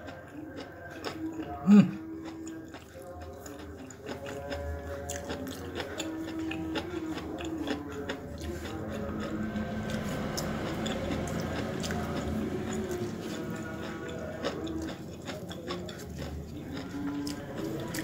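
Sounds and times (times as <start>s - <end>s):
person chewing food: 0.0s - 18.0s
low hum: 6.4s - 15.2s.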